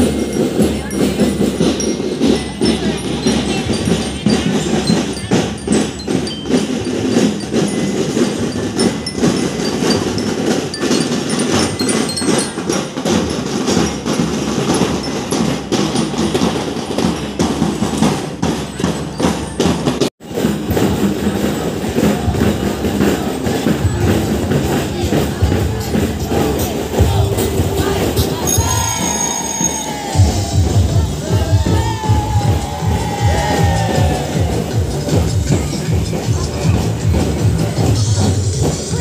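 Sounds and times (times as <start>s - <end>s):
drums beating: 0.0s - 39.0s
high ringing notes: 23.9s - 36.2s.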